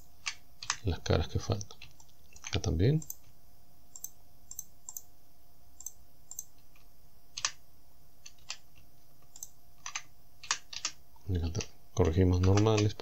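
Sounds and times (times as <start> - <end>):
faint steady hum: 0.0 - 13.0
computer mouse clicks: 0.2 - 0.8, 1.6 - 3.3, 3.9 - 5.1, 5.8 - 7.6, 8.2 - 11.7, 12.4 - 13.0
keyboard keys clicking: 12.4 - 13.0.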